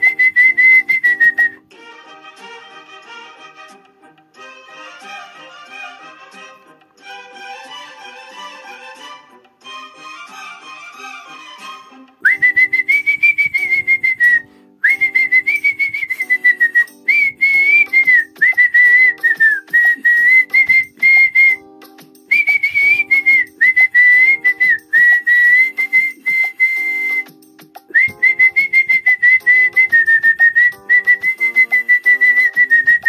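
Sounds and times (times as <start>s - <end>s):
man whistling a melody: 0.0s - 1.6s, 12.2s - 33.0s.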